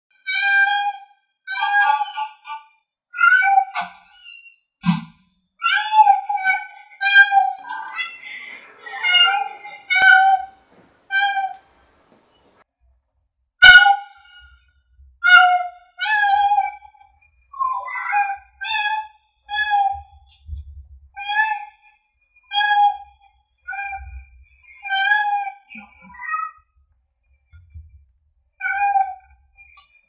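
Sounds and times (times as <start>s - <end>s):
cat meowing: 7.2s - 12.5s.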